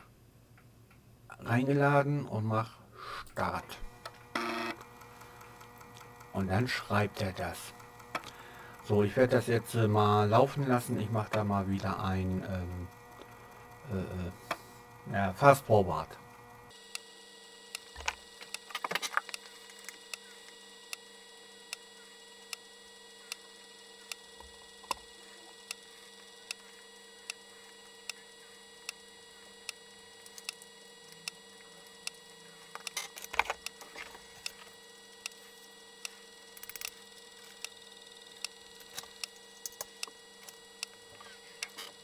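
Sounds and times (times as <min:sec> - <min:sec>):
faint steady hum: 0:00.0 - 0:42.0
floppy drive head clicking: 0:04.0 - 0:09.9, 0:10.8 - 0:15.0.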